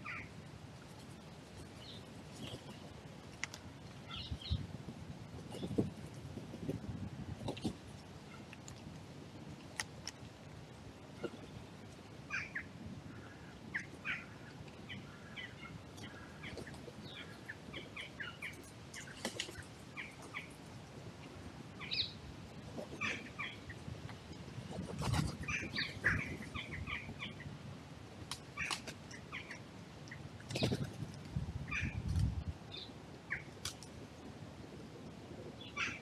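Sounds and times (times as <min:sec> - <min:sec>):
small birds chirping: 0:12.3 - 0:20.6, 0:25.1 - 0:27.4, 0:28.6 - 0:30.9
wing flaps: 0:24.6 - 0:26.5, 0:30.5 - 0:31.2.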